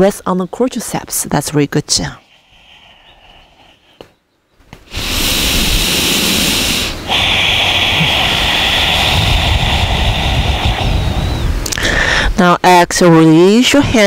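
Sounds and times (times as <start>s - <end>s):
loud steady rushing noise: 4.9s - 11.7s.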